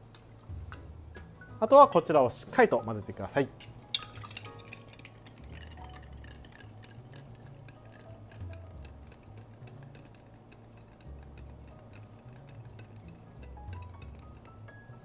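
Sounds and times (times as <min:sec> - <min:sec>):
faint background music: 0:00.0 - 0:15.0
spoon stirring ice in glass: 0:03.5 - 0:15.0.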